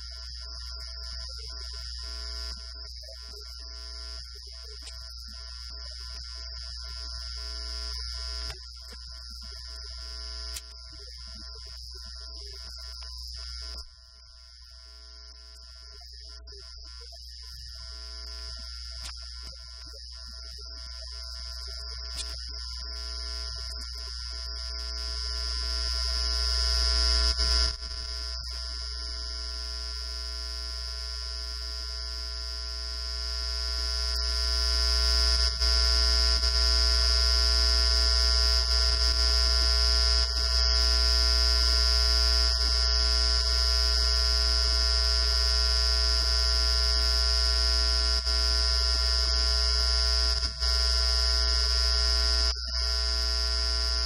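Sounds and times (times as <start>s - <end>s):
electrical hum with high whine: 0.0s - 54.0s.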